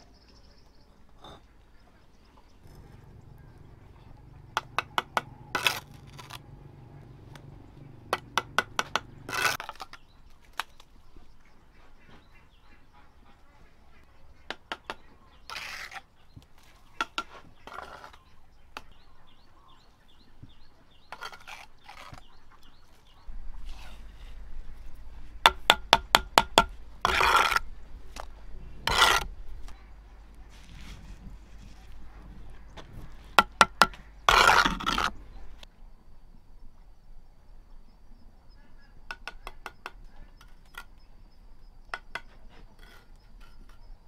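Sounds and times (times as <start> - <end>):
trowel scraping mortar: 4.6 - 6.5, 8.1 - 10.0, 14.9 - 16.1, 16.7 - 18.9, 21.0 - 22.8, 23.6 - 25.0, 26.6 - 29.8, 32.8 - 35.2, 42.2 - 44.0.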